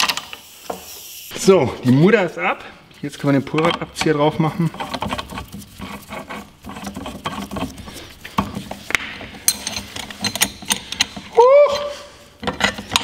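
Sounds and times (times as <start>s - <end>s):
metal tools clinking and scraping: 6.7s - 11.3s.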